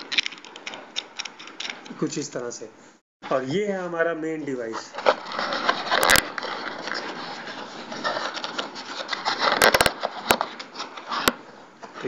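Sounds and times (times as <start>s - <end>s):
hands scraping plastic packaging: 4.7s - 11.4s.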